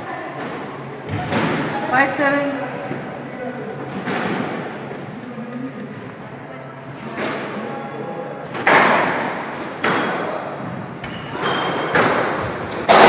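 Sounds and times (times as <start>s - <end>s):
squash ball hitting rackets and walls: 8.5s - 13.0s.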